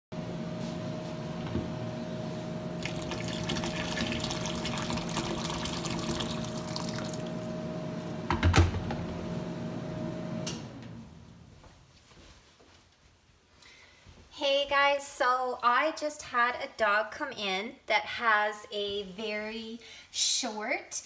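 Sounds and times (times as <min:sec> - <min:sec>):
water splashing on steel sink: 0:02.8 - 0:07.4.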